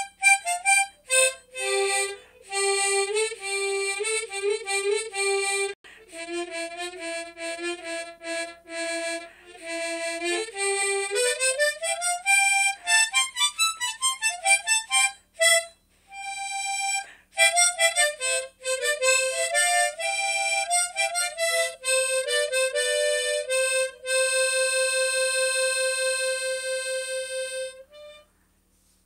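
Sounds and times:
solo harmonica playing: 0.0 - 28.4.

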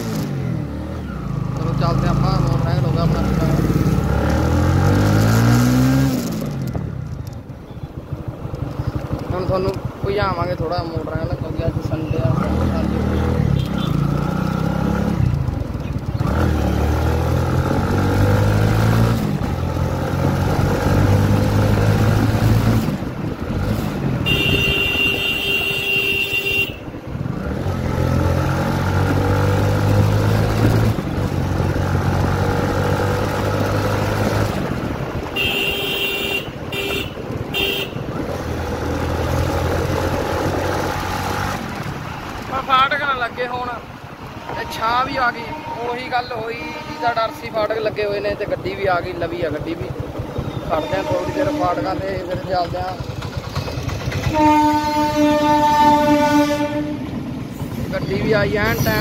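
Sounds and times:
vehicle horn honking: 24.2 - 27.0, 35.3 - 38.1, 44.3 - 47.5, 50.5 - 52.0, 54.2 - 57.1
motor scooter engine running: 48.4 - 55.1.

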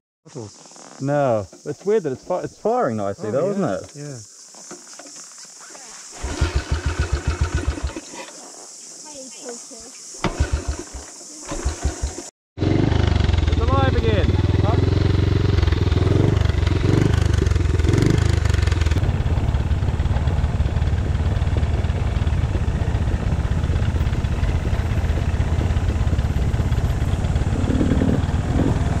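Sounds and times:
high hiss: 0.3 - 12.3
dirt bike engine running: 6.2 - 8.1, 10.2 - 29.0.

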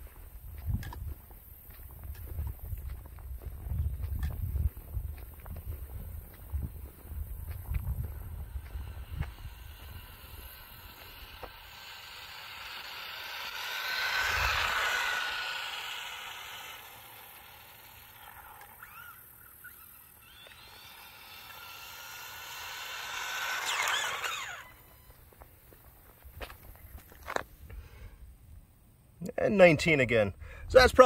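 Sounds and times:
tyre noise on asphalt: 0.0 - 27.8
electric motor whining: 4.2 - 27.4.

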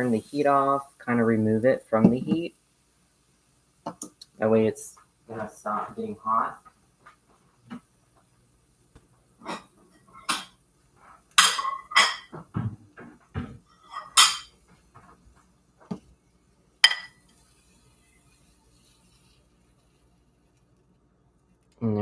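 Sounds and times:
dishes clinking and knocking: 9.4 - 10.6, 11.3 - 14.6, 16.8 - 17.2.

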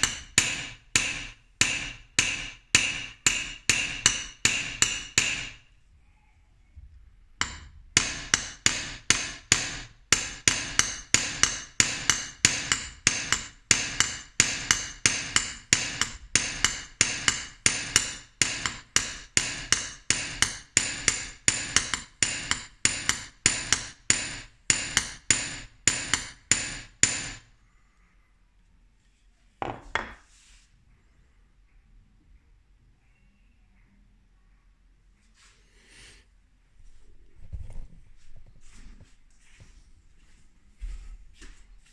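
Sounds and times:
hammer tapping steel on anvil: 0.0 - 5.7, 7.4 - 27.5.

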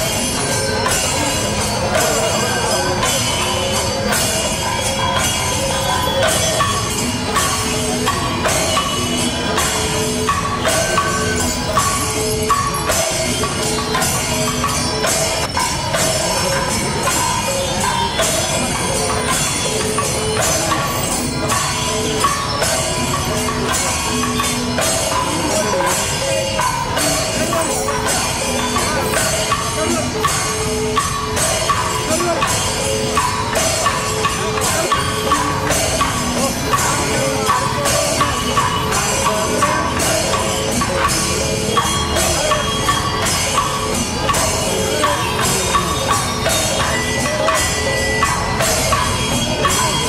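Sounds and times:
jingling hand percussion: 0.0 - 50.0.

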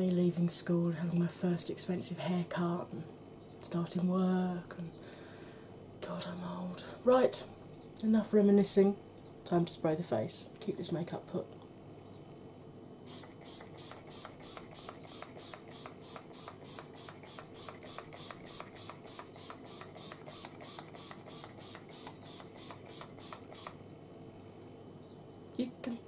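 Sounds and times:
spray bottle misting hisses: 13.1 - 23.8.

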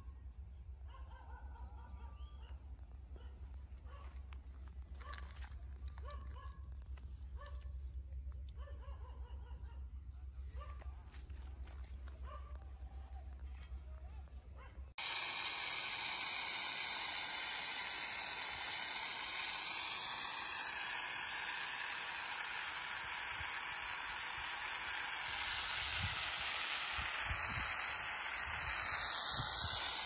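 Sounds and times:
water hissing from hose nozzle: 15.0 - 30.0.

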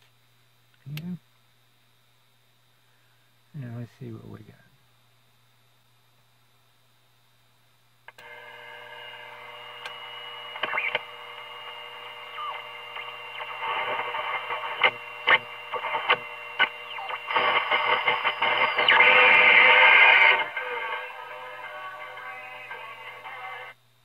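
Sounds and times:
static crackles: 8.0 - 23.8
radio hum: 8.1 - 23.8
radio station broadcast: 8.2 - 23.8
radio whistle tones: 10.4 - 23.7.

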